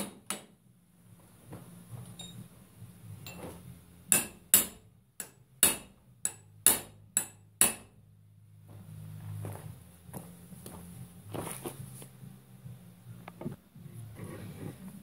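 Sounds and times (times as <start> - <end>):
hammer striking steel: 3.2 - 8.0.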